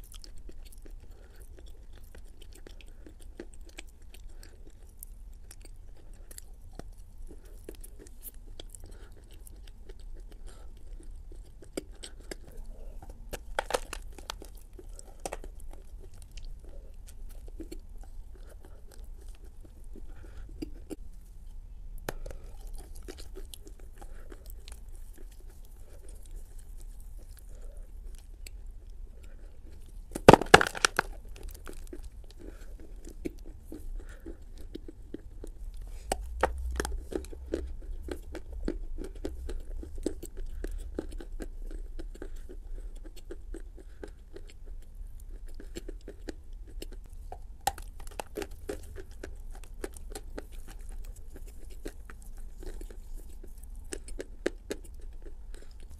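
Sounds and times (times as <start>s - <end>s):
chewing clicks: 0.0s - 21.0s, 22.0s - 55.9s
person biting clay: 13.0s - 15.8s, 30.1s - 32.4s.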